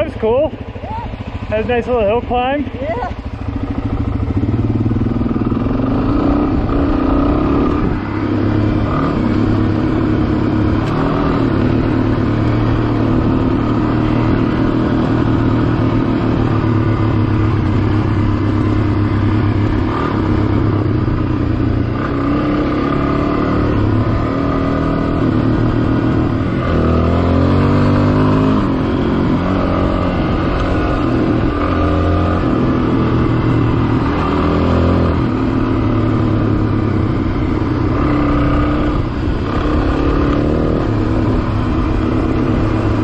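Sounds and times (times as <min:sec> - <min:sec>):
motorcycle engine running: 0:00.0 - 0:43.0
road and wind noise: 0:00.0 - 0:43.0.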